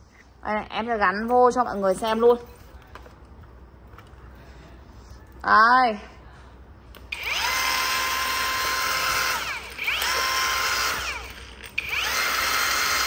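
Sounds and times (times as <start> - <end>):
angle grinder motor whine: 7.1 - 13.0.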